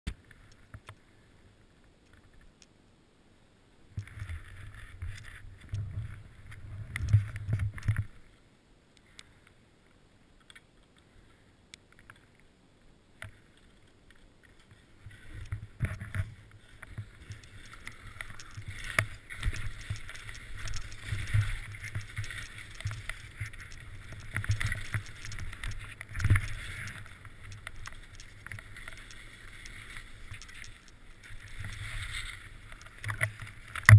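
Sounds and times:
wind rumbling on microphone: 3.9 - 8.3
skis scraping over snow: 14.5 - 33.9.

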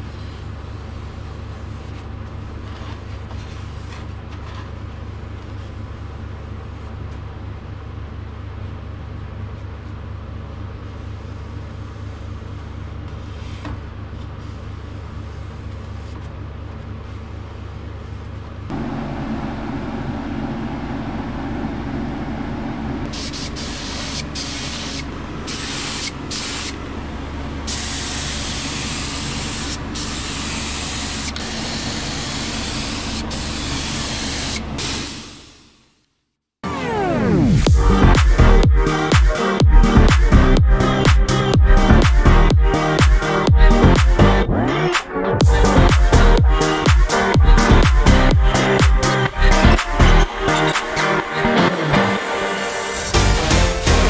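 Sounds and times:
low machine hum: 0.0 - 33.8, 36.7 - 52.2
spray gun hissing: 23.1 - 26.7.

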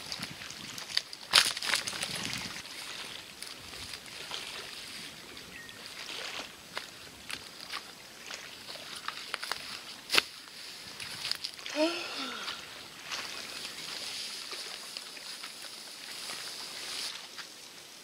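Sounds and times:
lake waves lapping: 0.0 - 17.4.

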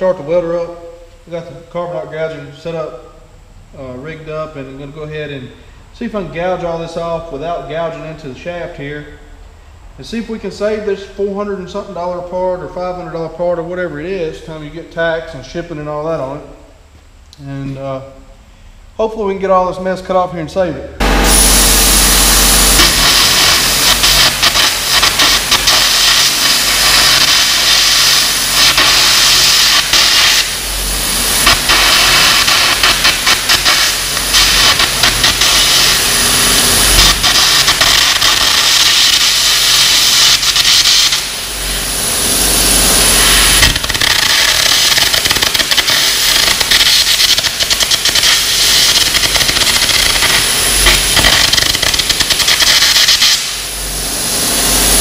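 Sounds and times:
arc gouging crackling hiss: 0.0 - 20.2, 21.0 - 55.0
welder humming: 21.0 - 55.0.

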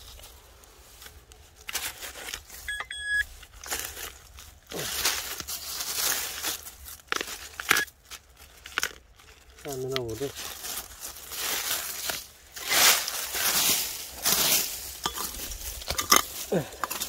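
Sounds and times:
hands rustling dry leaves: 0.0 - 17.0
short electronic beeps: 2.7 - 3.3.

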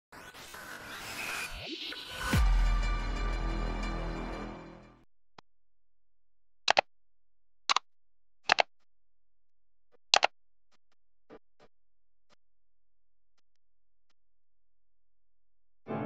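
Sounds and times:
computer mouse double clicks: 8.5 - 8.7.

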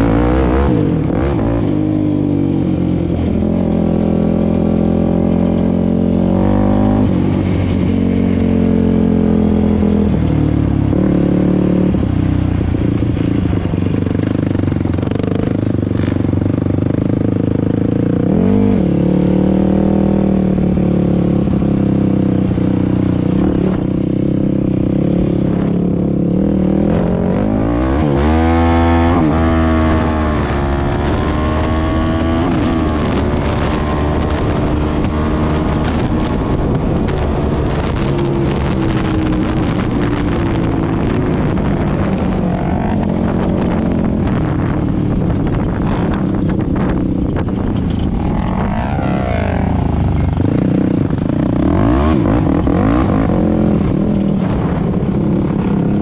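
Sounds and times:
quad engine revving: 24.9 - 47.0, 47.6 - 54.9.

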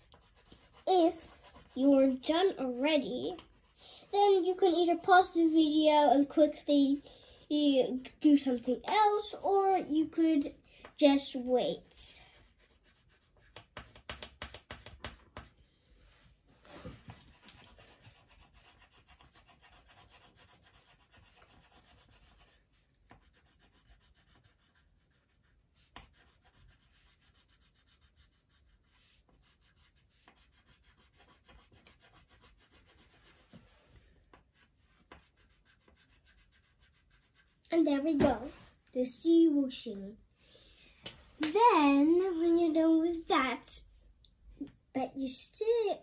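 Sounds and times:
marker scratching on paper: 0.0 - 9.7, 11.4 - 15.6, 17.2 - 37.7.

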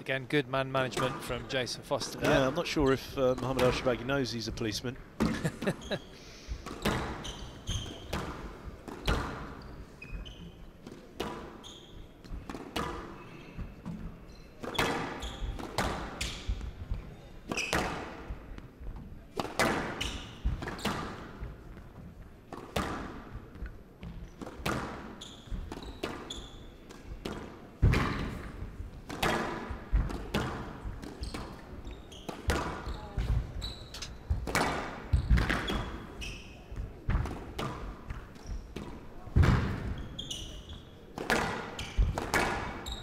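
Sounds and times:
shoes squeaking on wooden floor: 5.3 - 8.2, 9.0 - 10.8, 11.5 - 12.5, 23.4 - 27.3, 30.8 - 34.4, 35.1 - 36.9, 39.7 - 41.1, 41.7 - 43.0
squash ball hitting rackets: 6.6 - 9.6, 10.2 - 11.6, 12.2 - 16.8, 17.5 - 18.3, 19.3 - 21.8, 22.5 - 40.0, 41.1 - 43.0
ball smacking court walls: 41.2 - 42.9.

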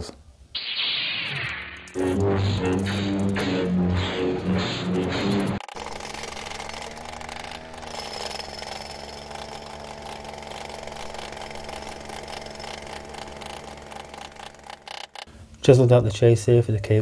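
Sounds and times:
steady hum: 0.6 - 7.8.

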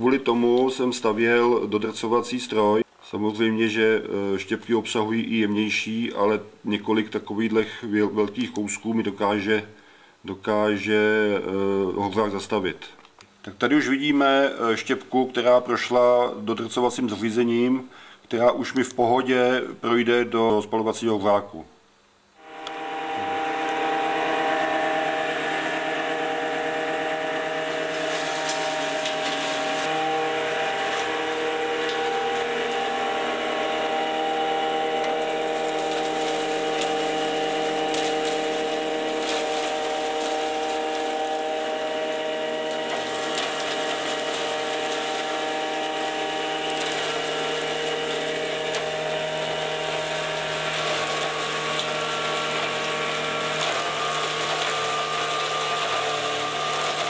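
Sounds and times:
wood chip crusher humming: 0.0 - 10.1, 22.3 - 57.0
wood chips rattling and crackling: 22.5 - 57.0.

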